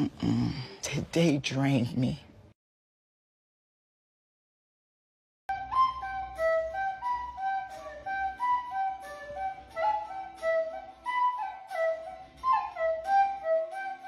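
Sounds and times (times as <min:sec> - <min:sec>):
recorder playing a simple tune: 0:05.5 - 0:14.0.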